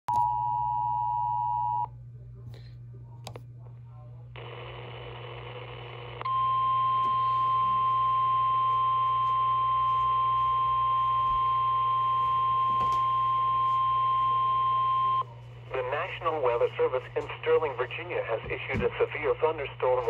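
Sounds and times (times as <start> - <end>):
radio hiss: 4.4 - 6.4, 13.7 - 20.0
loud steady alarm tone: 6.3 - 15.2.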